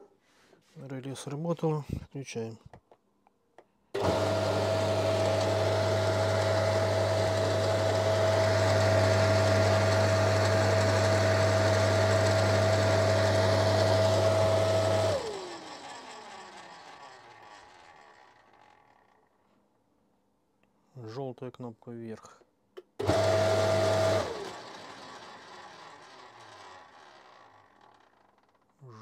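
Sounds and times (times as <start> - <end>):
electric motor humming and whining: 4.0 - 15.4, 23.0 - 24.6
motor winding down: 4.0 - 19.4, 23.0 - 28.7.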